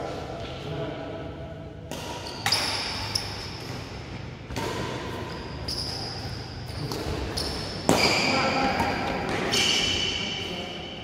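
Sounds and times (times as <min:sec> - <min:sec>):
racket hitting shuttlecock: 0:01.9 - 0:10.0.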